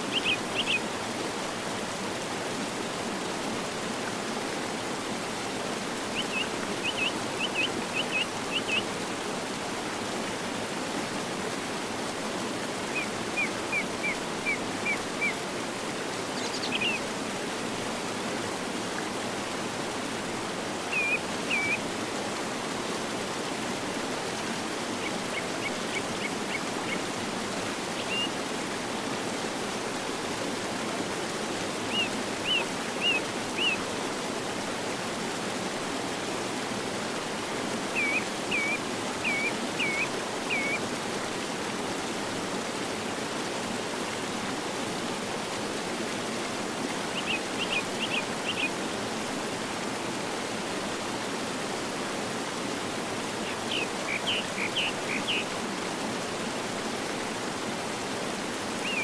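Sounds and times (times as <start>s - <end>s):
river rushing: 0.0s - 59.0s
songbird calling: 0.1s - 0.8s, 6.2s - 8.8s, 16.4s - 17.0s, 20.9s - 21.8s, 28.0s - 28.3s, 31.9s - 33.8s, 38.0s - 40.8s, 47.2s - 48.7s, 53.4s - 55.5s.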